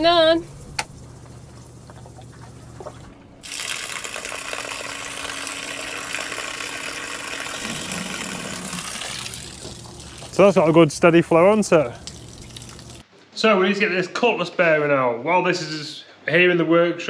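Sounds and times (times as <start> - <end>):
water gushing from outlet: 0.0 - 13.0.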